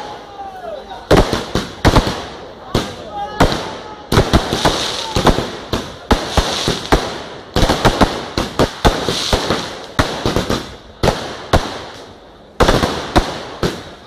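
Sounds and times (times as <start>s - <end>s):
fireworks bangs: 0.0s - 14.0s
fireworks crackling: 0.0s - 14.0s.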